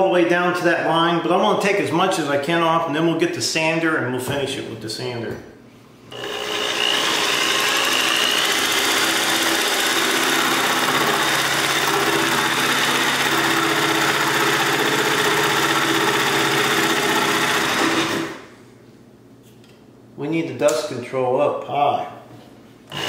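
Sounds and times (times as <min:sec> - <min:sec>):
jigsaw cutting countertop: 0:06.1 - 0:18.5.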